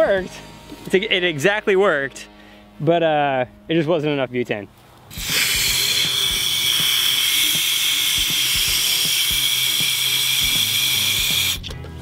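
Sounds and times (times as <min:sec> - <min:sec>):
gas can hissing: 0:05.1 - 0:11.7.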